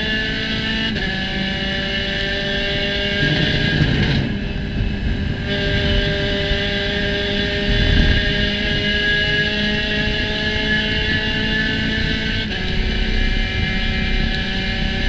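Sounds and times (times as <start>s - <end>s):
race car engine at high revs: 0.0s - 15.0s
low engine rumbles: 9.8s - 15.0s.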